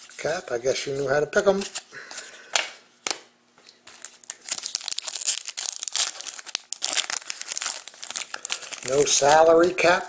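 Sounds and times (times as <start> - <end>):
foil wrapper crinkling and tearing: 3.9 - 9.7.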